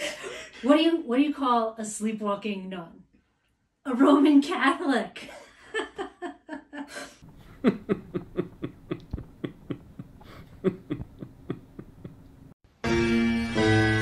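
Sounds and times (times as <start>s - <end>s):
man laughing: 5.7s - 12.5s.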